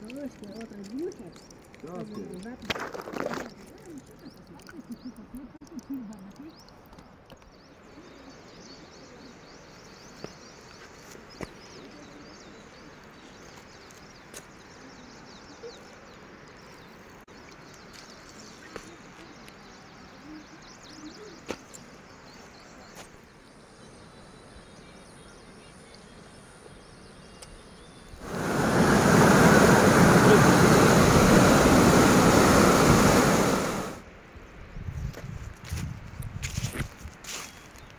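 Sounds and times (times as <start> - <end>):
stream running over rocks: 0.0 - 20.2, 28.1 - 34.1.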